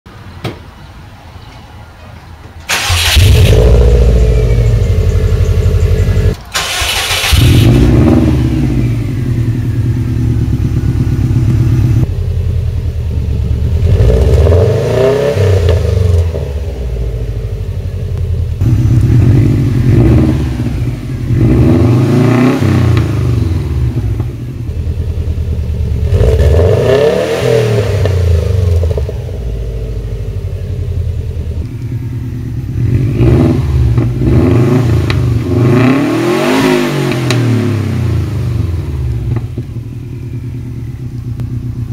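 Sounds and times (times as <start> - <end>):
car engine revving: 2.7 - 12.2, 13.5 - 17.3, 18.6 - 25.3, 26.0 - 30.9, 31.8 - 40.3
car engine idling: 2.7 - 14.2, 16.1 - 22.1, 23.0 - 26.2, 28.1 - 34.3, 38.2 - 41.9
car engine starting: 2.7 - 41.9.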